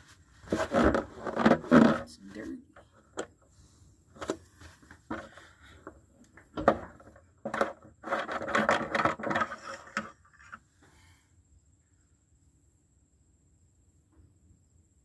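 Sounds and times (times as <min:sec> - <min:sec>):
rubbing and scraping: 0:00.0 - 0:03.3, 0:04.1 - 0:06.0, 0:06.6 - 0:10.6.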